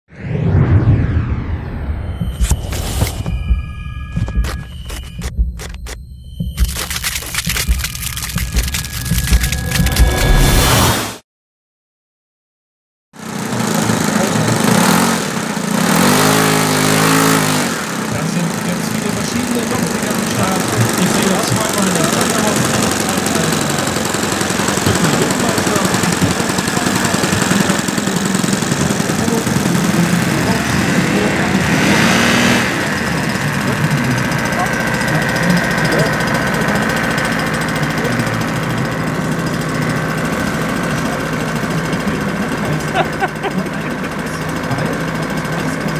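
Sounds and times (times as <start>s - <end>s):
model plane engine running: 13.2s - 45.9s.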